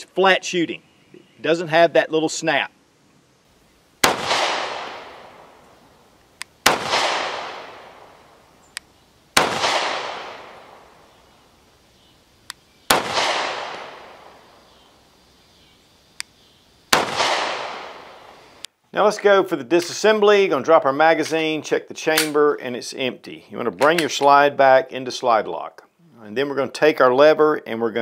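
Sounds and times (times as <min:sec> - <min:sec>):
pistol shots: 0:04.0 - 0:05.7, 0:06.6 - 0:08.4, 0:09.4 - 0:11.2, 0:12.9 - 0:14.5, 0:16.9 - 0:18.4
faint click: 0:12.4 - 0:12.6, 0:16.2 - 0:16.4.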